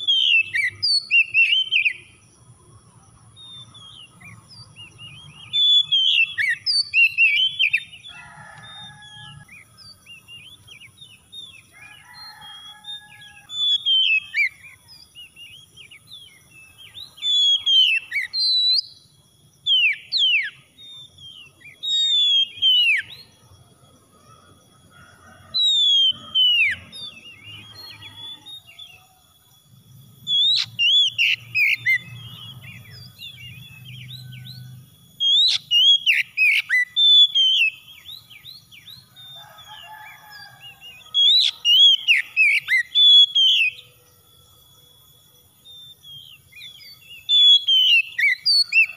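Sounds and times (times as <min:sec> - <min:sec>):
bird singing whistled phrases: 0:00.0 - 0:02.0, 0:03.8 - 0:08.0, 0:13.0 - 0:19.0, 0:19.7 - 0:23.3, 0:30.3 - 0:39.0, 0:40.9 - 0:43.9, 0:45.7 - 0:48.9.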